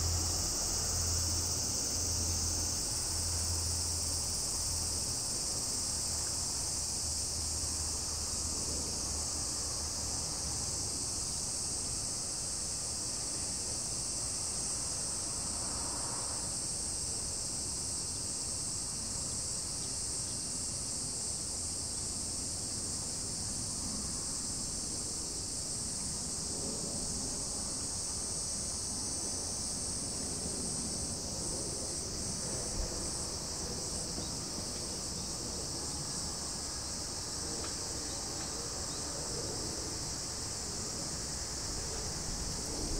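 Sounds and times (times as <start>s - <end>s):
insect chorus shrilling: 33.1s - 42.6s.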